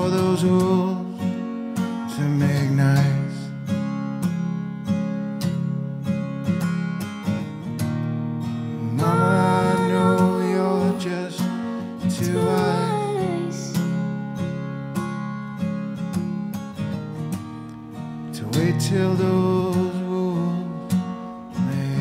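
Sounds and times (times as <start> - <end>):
acoustic guitar strumming: 0.0 - 22.0
woman singing: 8.9 - 11.4, 12.1 - 13.9.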